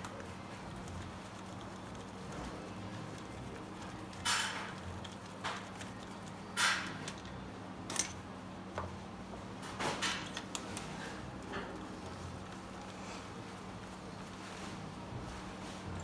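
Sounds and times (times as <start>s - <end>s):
hand tools clicking and clattering: 3.2s - 8.2s.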